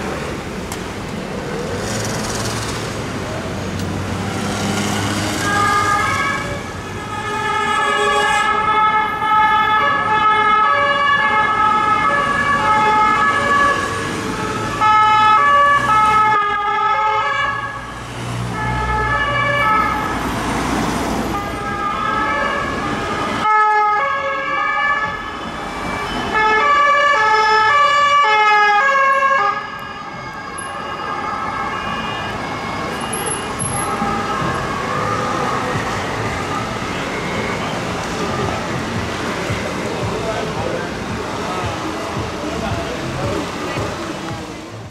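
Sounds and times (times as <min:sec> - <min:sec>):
passing traffic: 0:00.0 - 0:44.9
two-tone police sirens: 0:07.5 - 0:20.3, 0:21.6 - 0:39.6.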